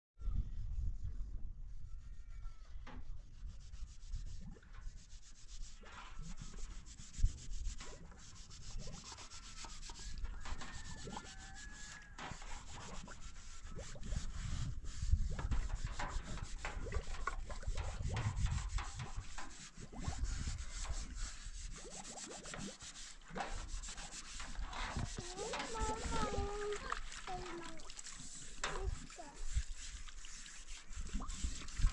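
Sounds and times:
wind rumbling on microphone: 0:00.2 - 0:05.1, 0:05.7 - 0:09.2, 0:09.9 - 0:22.7, 0:23.3 - 0:27.7, 0:28.3 - 0:31.9.

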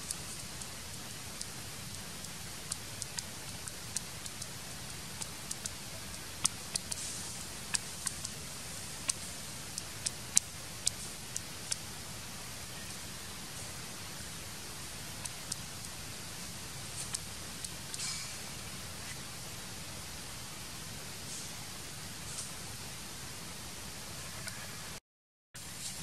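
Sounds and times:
sharp high-pitched clicks: 0:00.0 - 0:11.9, 0:15.2 - 0:16.0, 0:16.9 - 0:18.2
forest ambience hiss: 0:00.0 - 0:25.0, 0:25.6 - 0:26.0.

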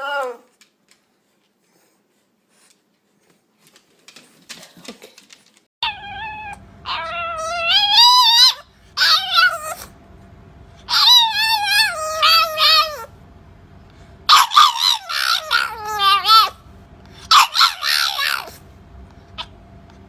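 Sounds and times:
puppy whining: 0:00.0 - 0:00.6, 0:05.8 - 0:10.0, 0:10.8 - 0:13.1, 0:14.3 - 0:18.6, 0:19.3 - 0:19.6.

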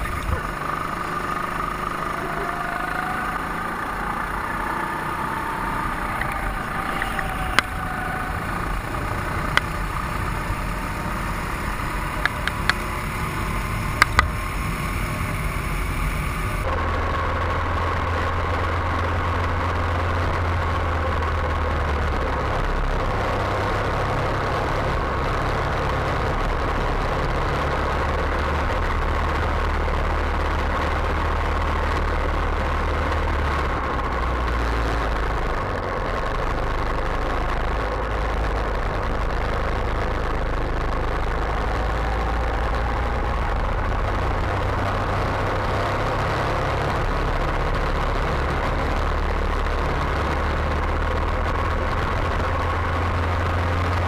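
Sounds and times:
go-kart engines running: 0:00.0 - 0:54.0
sharp clicks: 0:09.4 - 0:09.8, 0:12.0 - 0:12.9, 0:13.9 - 0:14.4.

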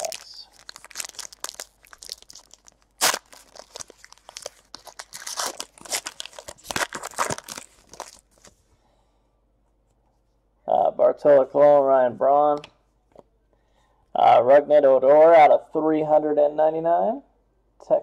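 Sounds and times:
wrapper tearing and crinkling: 0:00.0 - 0:08.5.

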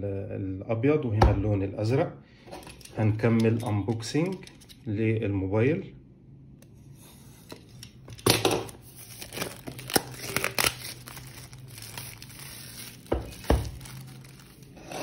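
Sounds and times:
plastic wrap crinkling and tearing: 0:08.0 - 0:15.0.

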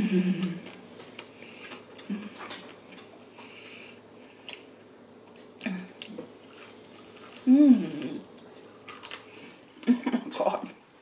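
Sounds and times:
chewing crunchy fries: 0:05.3 - 0:09.6.

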